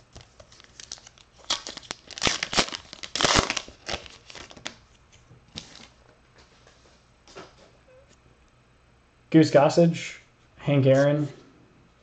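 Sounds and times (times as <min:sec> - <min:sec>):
wrapper tearing and crinkling: 0:00.4 - 0:04.8.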